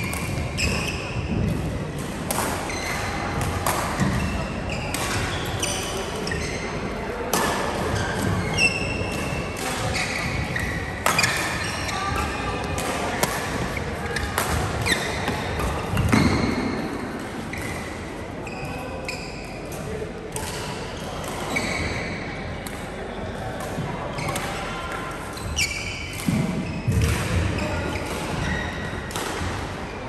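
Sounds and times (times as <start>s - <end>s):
shoe squeaks on court floor: 0.0s - 1.2s, 4.0s - 6.8s, 8.0s - 12.5s, 13.7s - 16.8s, 17.5s - 19.6s, 21.0s - 22.3s, 25.4s - 26.9s
racket hitting shuttlecock: 1.4s - 5.6s, 7.3s - 17.9s, 25.5s - 29.7s.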